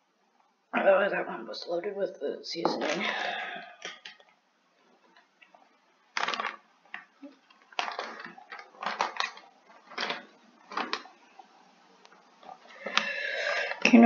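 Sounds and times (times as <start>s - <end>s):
plastic snack bag crinkling: 6.1s - 11.4s.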